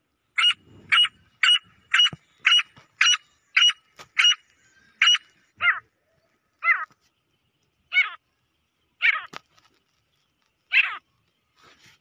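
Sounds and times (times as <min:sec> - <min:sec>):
francolin calling: 0:00.4 - 0:07.0, 0:07.9 - 0:08.2, 0:09.0 - 0:09.4, 0:10.7 - 0:11.0.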